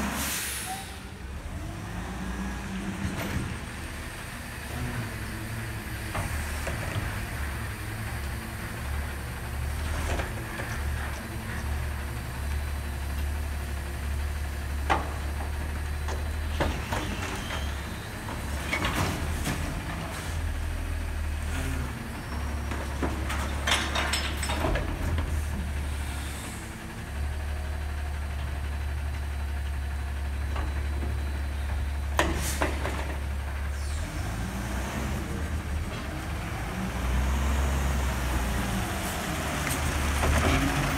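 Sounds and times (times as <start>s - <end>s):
short air hisses: 0.0s - 1.1s
metal clanks and knocks: 22.7s - 25.5s.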